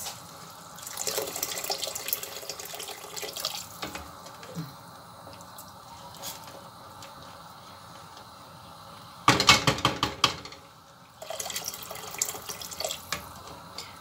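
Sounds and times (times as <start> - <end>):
water sloshing in a pot: 0.0 - 4.5, 10.3 - 14.0
spoon knocking on a pot: 9.3 - 10.5.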